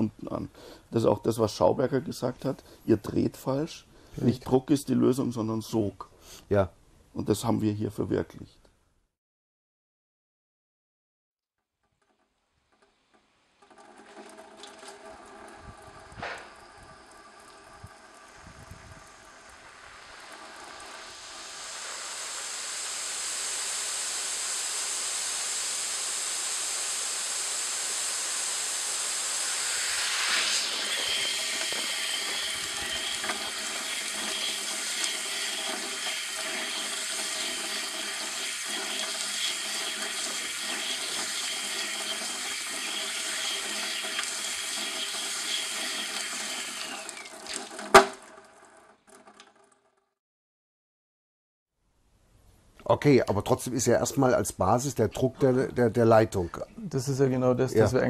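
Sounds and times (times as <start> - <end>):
shower water rushing: 13.8 - 49.5
thin high whistle: 29.2 - 33.0.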